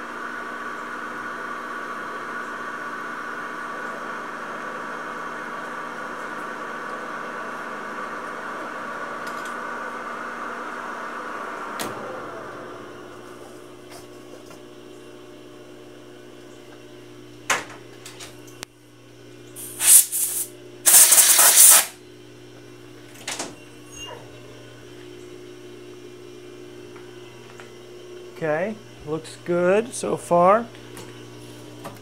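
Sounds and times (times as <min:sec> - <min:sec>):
short loud hisses: 0:19.6 - 0:22.0.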